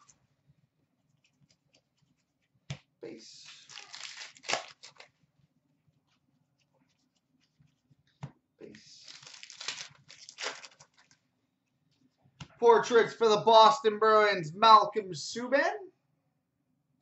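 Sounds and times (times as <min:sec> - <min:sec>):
trading cards rustling: 0:03.4 - 0:05.2, 0:09.0 - 0:11.2.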